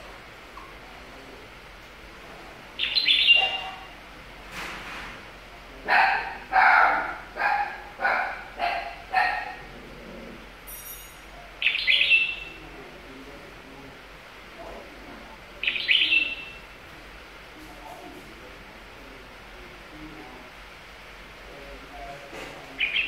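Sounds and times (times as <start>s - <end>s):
dog barking: 3.3s - 3.9s, 5.9s - 9.6s.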